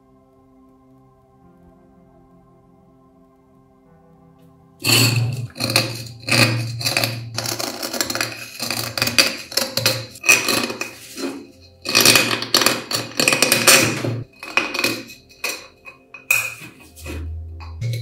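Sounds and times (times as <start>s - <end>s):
metal pick scraping rusty metal: 4.8s - 18.0s.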